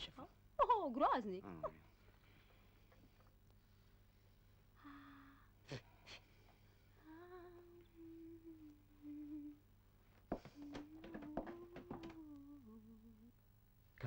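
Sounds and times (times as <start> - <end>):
person humming: 7.0 - 9.6, 10.4 - 13.4.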